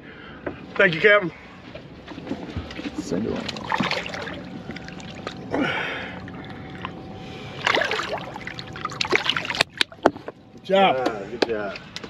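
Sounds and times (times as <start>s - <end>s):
faint steady hum: 0.0s - 12.0s
water splashing: 2.7s - 10.3s.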